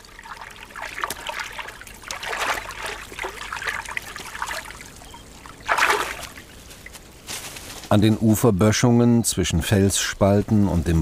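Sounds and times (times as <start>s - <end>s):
loud splash: 0.0s - 4.9s, 5.5s - 6.4s
water trickling and splashing: 0.0s - 7.8s.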